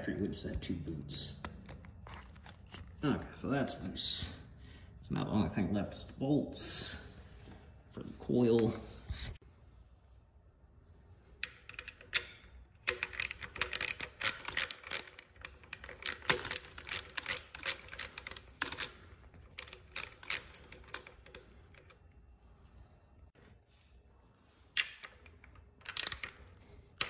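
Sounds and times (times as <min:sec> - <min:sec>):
socket ratchet clicking: 0:11.4 - 0:22.0, 0:24.8 - 0:27.0.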